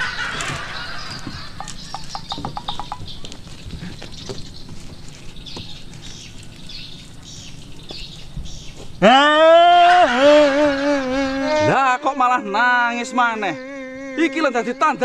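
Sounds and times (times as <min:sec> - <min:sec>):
scattered clicks: 0:01.6 - 0:03.4
man wailing and crying: 0:09.0 - 0:15.0.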